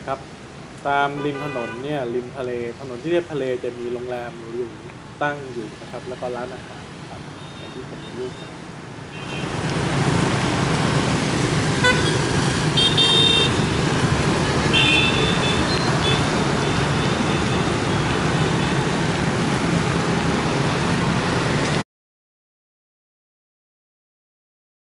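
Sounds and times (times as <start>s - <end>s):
roadside traffic noise: 0.0s - 21.8s
vehicle horn toots: 1.2s - 1.8s, 11.8s - 12.2s, 12.8s - 13.6s, 14.7s - 17.6s.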